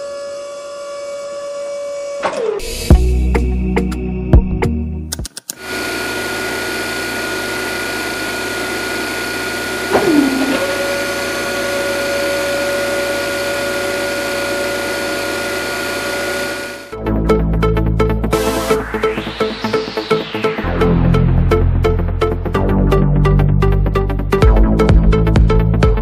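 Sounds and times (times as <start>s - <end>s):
small electric motors whirring: 5.6s - 16.9s
tone sweeping down: 9.9s - 12.2s, 17.8s - 22.2s.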